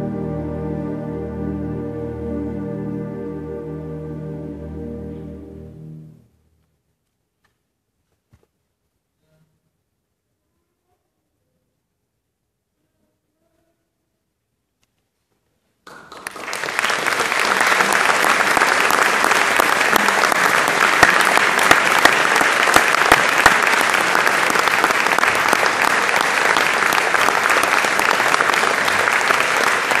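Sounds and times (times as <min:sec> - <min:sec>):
audience applause: 0:15.9 - 0:30.0.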